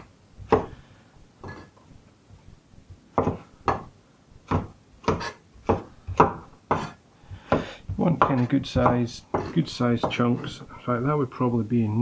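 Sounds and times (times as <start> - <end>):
knife chopping on wooden board: 0.0 - 0.8, 3.1 - 10.5.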